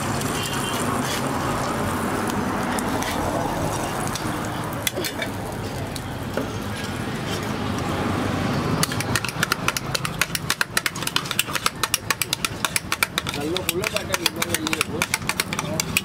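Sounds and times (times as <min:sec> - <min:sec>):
stall background noise: 0:00.0 - 0:16.0
metal spatulas clattering on griddle: 0:04.0 - 0:05.4, 0:08.8 - 0:16.0.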